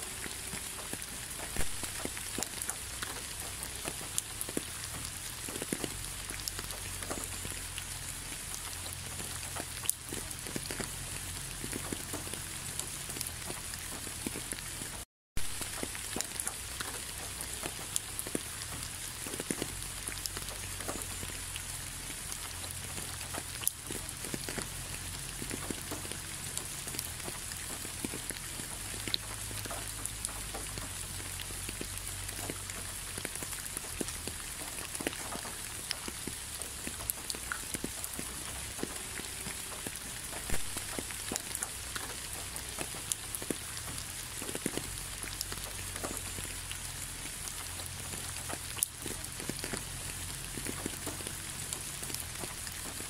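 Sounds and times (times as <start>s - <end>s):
steady rain falling: 0.0s - 53.0s.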